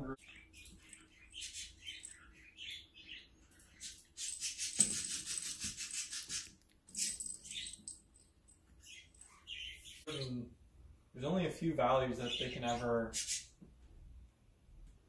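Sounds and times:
small bell jingling: 3.6s - 9.9s.

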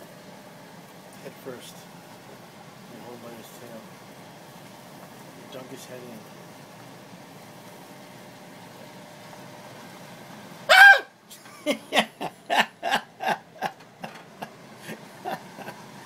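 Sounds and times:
person yelping: 10.7s - 11.1s
person laughing: 10.8s - 15.9s.

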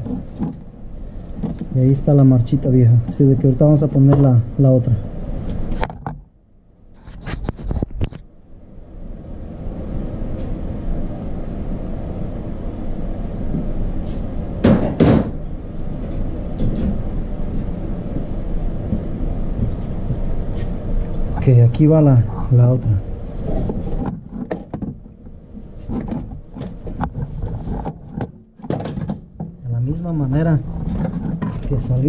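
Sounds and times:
steady low rumble: 0.0s - 28.6s, 29.2s - 32.0s
sharp knocks and clunks: 14.6s - 15.4s, 23.7s - 25.1s, 25.9s - 29.6s.

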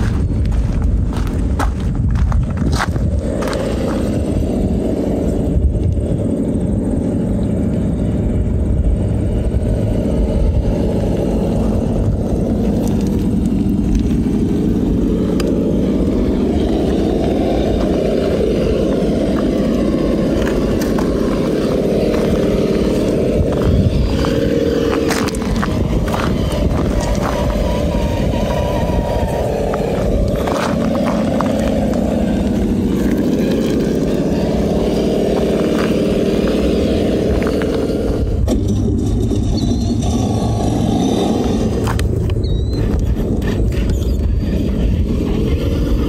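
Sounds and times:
tyres crunching over stones: 0.0s - 5.1s, 10.7s - 38.4s
low rumble: 0.0s - 46.0s
rc car motor running: 0.0s - 46.0s.

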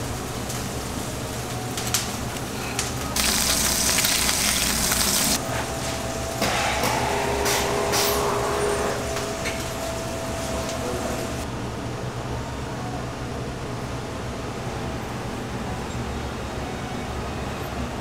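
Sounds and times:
loud hiss: 0.0s - 11.5s
steady fan noise: 0.0s - 18.0s.

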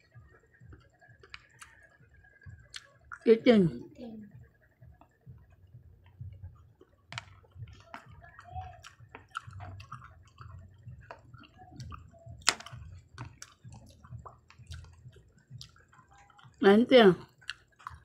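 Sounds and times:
soft chewing: 0.0s - 18.0s
chopsticks clicking on candy: 6.8s - 16.5s.

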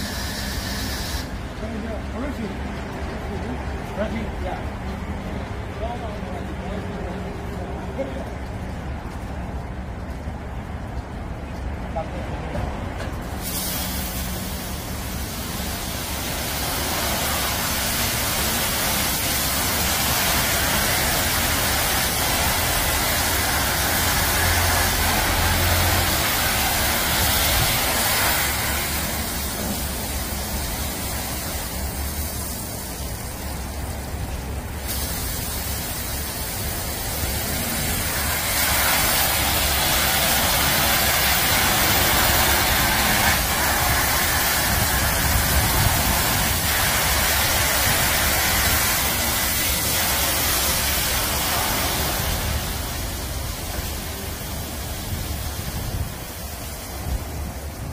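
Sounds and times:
high-pressure water spray hissing: 0.0s - 1.4s, 13.2s - 57.9s.

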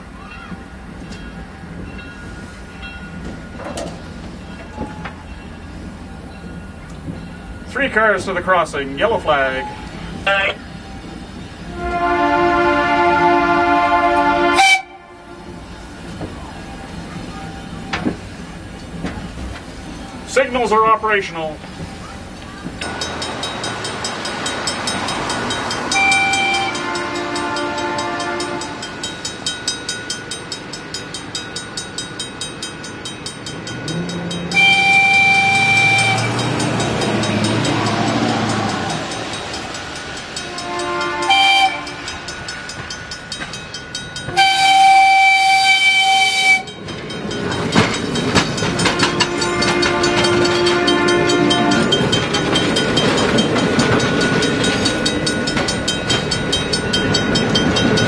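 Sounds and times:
level-crossing warning bell: 0.0s - 58.0s
train wheels clacking over rail joints: 0.5s - 8.3s, 15.4s - 58.0s
train air horn blasts: 11.7s - 15.6s, 25.9s - 28.8s, 34.5s - 36.7s, 40.4s - 42.3s, 44.3s - 46.7s, 48.7s - 52.0s.

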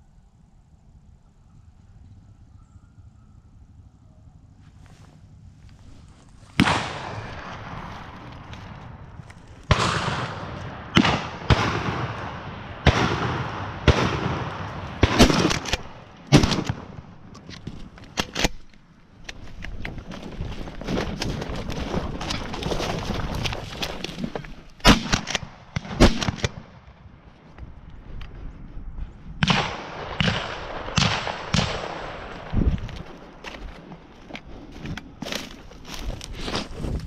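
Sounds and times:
shotgun blasts echoing: 6.6s - 9.0s, 9.6s - 17.3s, 24.8s - 26.9s, 29.4s - 32.5s.

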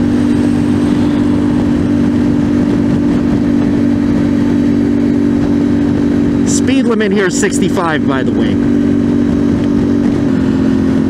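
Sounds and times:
motorcycle engine cruising: 0.0s - 11.0s
wind rushing over microphone: 0.0s - 11.0s.

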